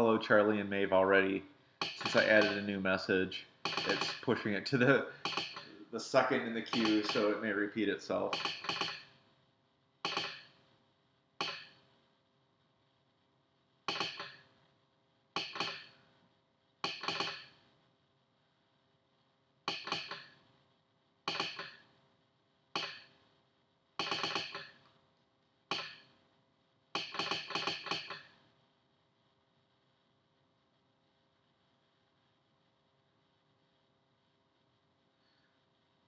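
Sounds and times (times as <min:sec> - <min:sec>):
telegraph sounder clicking: 0:01.8 - 0:02.7, 0:03.6 - 0:04.3, 0:06.6 - 0:07.4, 0:08.3 - 0:09.0.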